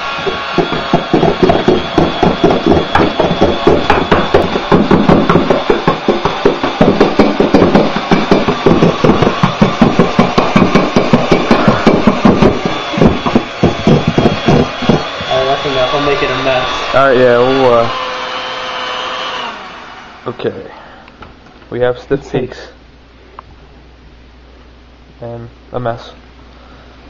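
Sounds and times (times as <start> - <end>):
hand mixer motor humming: 0.0 - 20.3.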